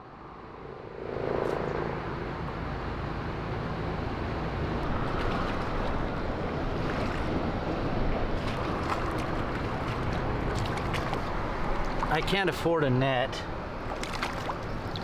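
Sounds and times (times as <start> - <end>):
creek water rushing: 3.1 - 15.0.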